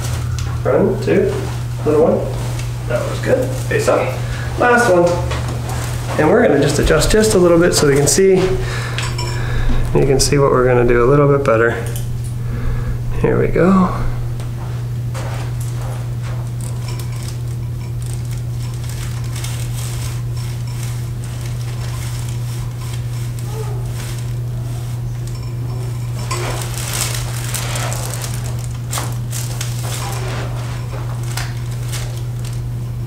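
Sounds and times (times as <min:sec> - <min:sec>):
low hum: 0:00.0 - 0:02.7, 0:04.2 - 0:19.4.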